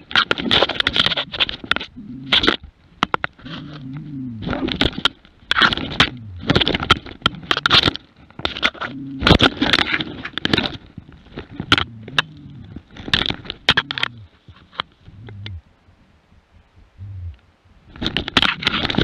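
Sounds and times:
wolf and dog growling and snarling: 0.6 - 2.6, 3.4 - 8.0, 8.6 - 10.0, 11.4 - 14.4, 15.0 - 15.6.

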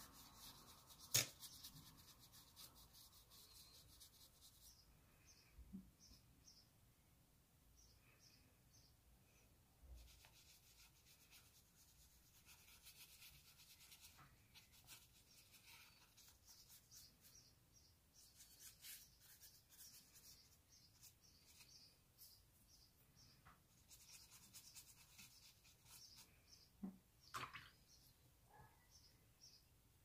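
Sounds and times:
paintbrush brushing on paper: 0.0 - 4.8, 10.0 - 17.5, 18.1 - 22.9, 23.6 - 26.4.

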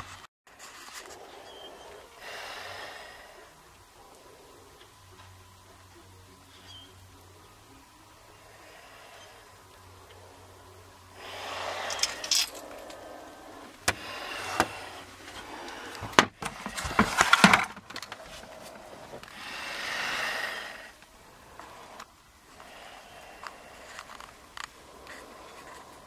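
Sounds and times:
foil duct rustling and scraping: 14.3 - 19.3.

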